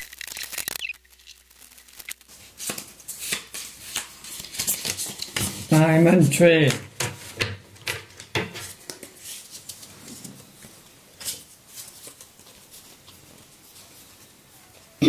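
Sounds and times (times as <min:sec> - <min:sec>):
playing cards clicking and flicking: 0:00.0 - 0:09.9.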